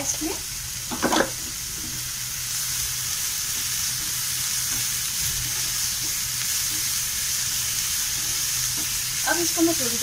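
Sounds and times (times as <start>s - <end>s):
vegetables sizzling in a pan: 0.0s - 10.0s
spatula stirring: 3.4s - 9.3s.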